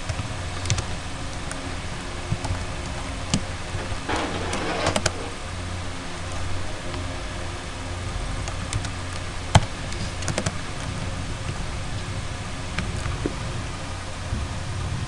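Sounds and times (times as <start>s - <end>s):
low hum: 0.0s - 14.4s
computer keyboard keystrokes: 10.2s - 10.5s.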